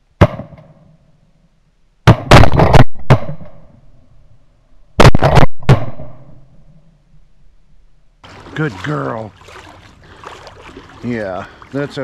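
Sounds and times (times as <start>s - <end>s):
shotgun blasts with echo: 0.2s - 0.9s, 2.0s - 3.7s, 5.0s - 6.4s.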